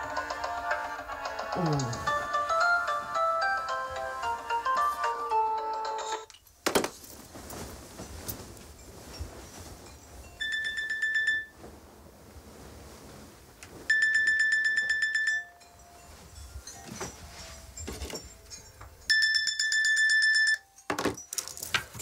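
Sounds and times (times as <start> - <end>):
phone alarm beeping: 10.4 - 11.5, 13.9 - 15.6, 19.1 - 20.8.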